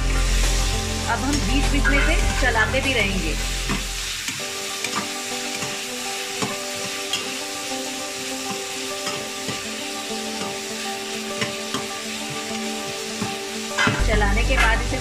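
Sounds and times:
vegetables sizzling in hot oil: 0.0s - 15.0s
metal spatula scraping pan: 1.2s - 2.7s, 13.7s - 15.0s.

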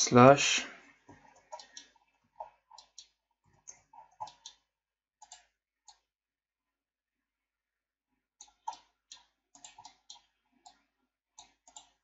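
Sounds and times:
computer mouse and keyboard clicks: 1.1s - 6.1s, 8.4s - 10.8s, 11.4s - 12.0s.

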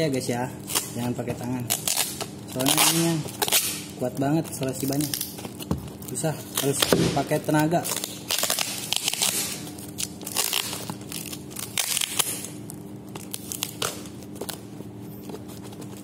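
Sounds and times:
packing tape ripping: 0.6s - 14.6s.

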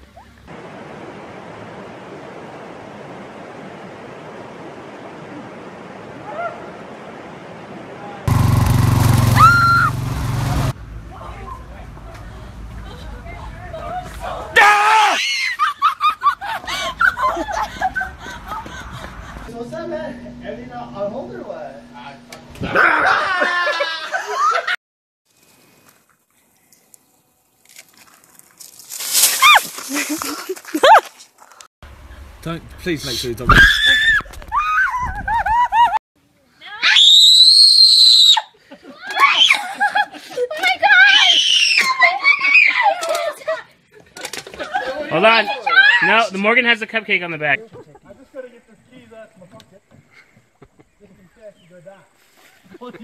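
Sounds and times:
lawn mower engine running: 8.3s - 13.7s
woman screaming: 9.3s - 10.0s, 14.6s - 15.7s, 29.3s - 29.7s, 36.6s - 39.7s, 40.8s - 43.1s, 45.6s - 46.1s
dry leaf litter rustling: 27.6s - 31.5s.

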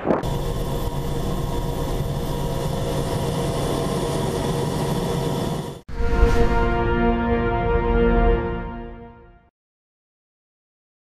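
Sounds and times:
helicopter engines and rotor running: 0.0s - 5.8s.

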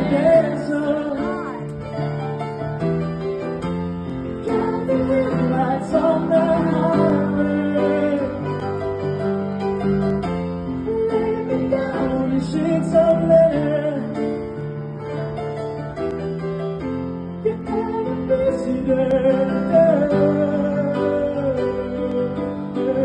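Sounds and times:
man singing: 0.0s - 1.8s, 4.5s - 8.7s, 10.8s - 14.5s, 17.4s - 23.0s
piano chords: 0.0s - 23.0s.

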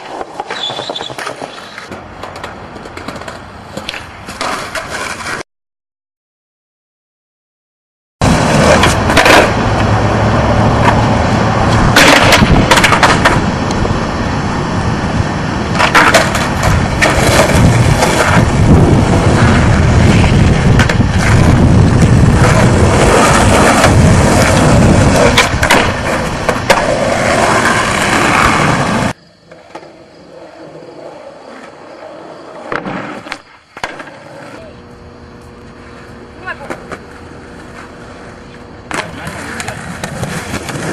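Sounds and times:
skateboard clacks: 0.0s - 5.4s, 8.2s - 10.0s, 11.7s - 13.8s, 15.7s - 30.8s, 32.5s - 40.9s
skateboard wheels rolling on asphalt: 0.0s - 5.4s, 8.2s - 40.9s.

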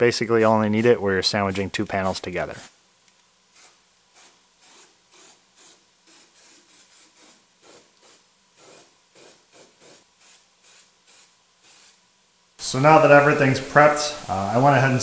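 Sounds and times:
aerosol can spraying: 3.5s - 12.0s.

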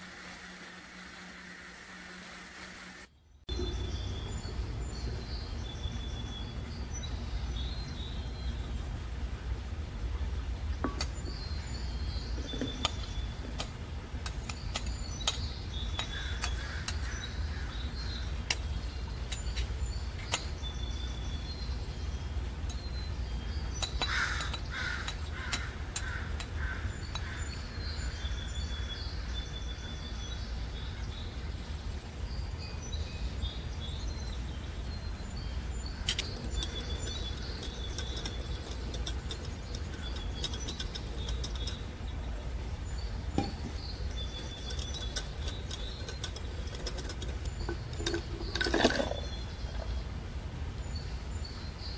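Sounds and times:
birds chirping: 10.8s - 51.9s
harsh bird caws: 16.0s - 18.2s, 24.0s - 27.7s.

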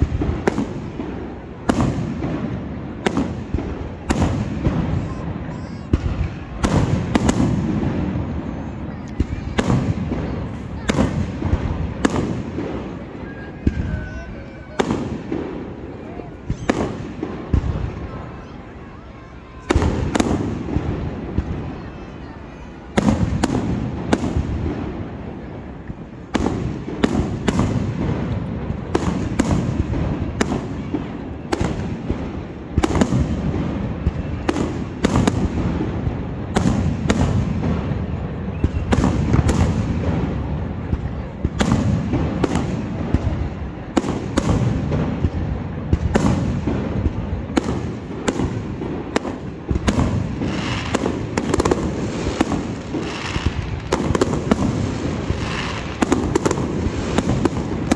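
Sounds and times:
fireworks bursting: 0.0s - 57.9s
low rumble of explosions: 0.0s - 57.9s.

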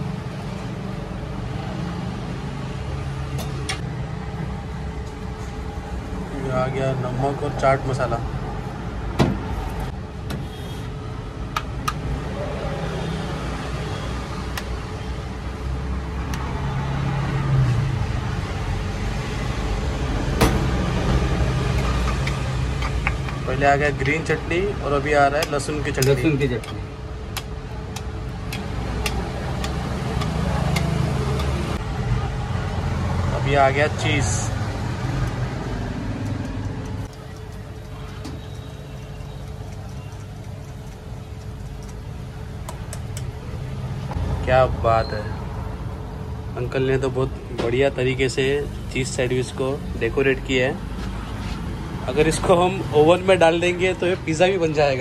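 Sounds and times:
road traffic rumble: 0.0s - 55.0s.

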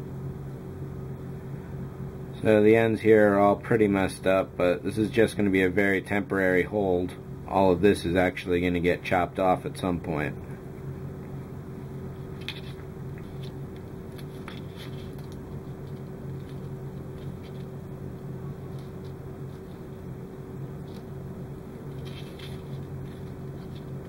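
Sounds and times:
low background hum: 0.0s - 24.0s
wires rustling and ticking: 12.2s - 24.0s.

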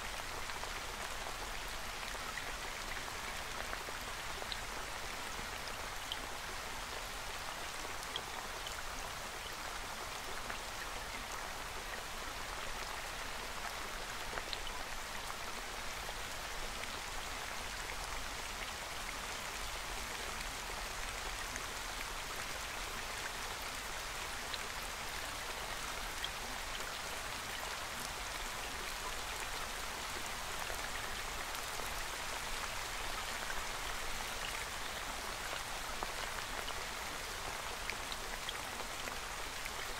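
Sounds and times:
steady rain: 0.0s - 39.9s.

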